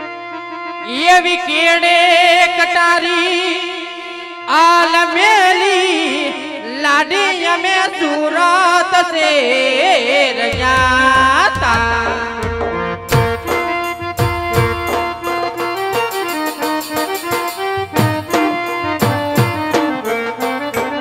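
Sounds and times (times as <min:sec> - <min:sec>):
drums: 0:10.4 - 0:21.0
folk melody over drone: 0:13.2 - 0:21.0.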